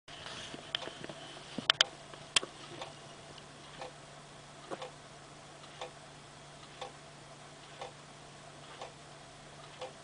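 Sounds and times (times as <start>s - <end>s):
wall clock ticking: 4.7s - 5.0s, 5.7s - 6.0s, 6.6s - 7.0s, 7.6s - 8.0s, 9.7s - 10.0s.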